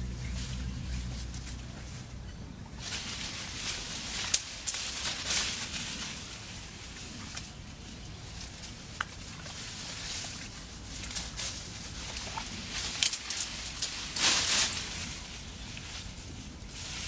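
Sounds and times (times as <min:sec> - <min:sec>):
leaves rustling: 0:00.0 - 0:17.0
low steady rumble: 0:00.0 - 0:17.0.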